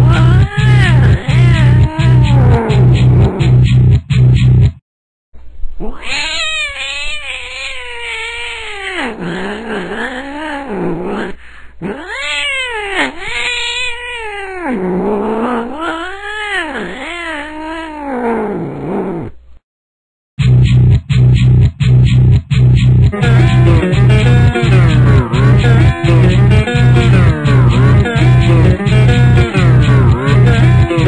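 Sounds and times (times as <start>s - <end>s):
cat yowling: 0.0s - 3.0s, 5.8s - 19.3s
electric guitar and bass: 0.0s - 4.8s, 20.4s - 31.0s.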